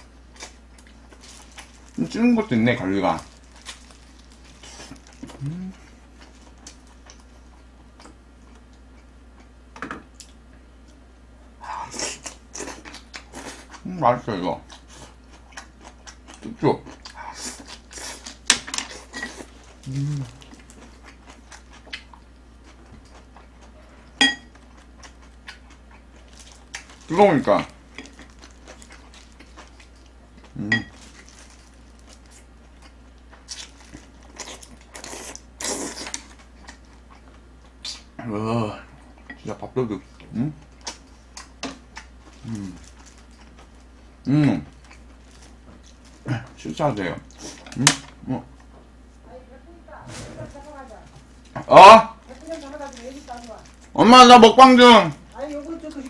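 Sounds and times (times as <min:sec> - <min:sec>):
short vocal sound: 0:05.4 - 0:05.8, 0:19.9 - 0:20.4.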